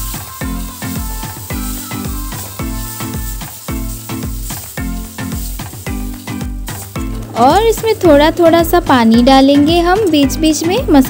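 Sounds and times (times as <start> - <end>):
spatula stirring: 0.0 - 8.3
background music with beat: 0.0 - 11.0
spice paste sizzling in oil: 0.0 - 11.0.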